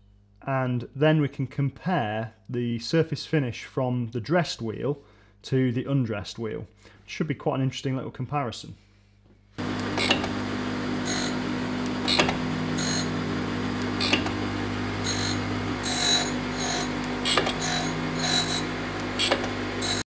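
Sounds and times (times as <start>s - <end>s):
grinder motor humming: 9.6s - 20.0s
grinding wheel hissing on steel: 9.6s - 20.0s
sharp clicks: 13.8s - 14.4s.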